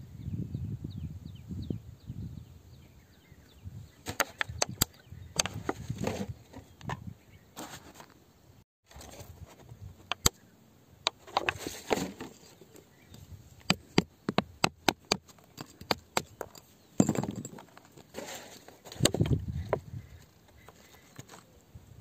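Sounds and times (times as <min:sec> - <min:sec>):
scratchy scraping: 0:15.0 - 0:21.5.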